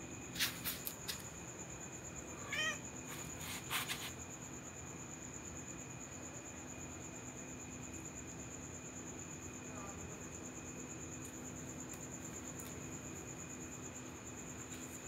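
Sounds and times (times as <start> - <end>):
crickets chirring: 0.0 - 15.0
cat meowing: 2.4 - 2.8.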